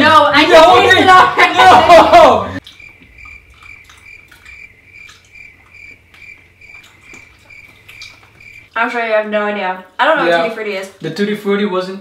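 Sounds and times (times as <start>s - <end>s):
cricket chirping: 2.6s - 8.7s.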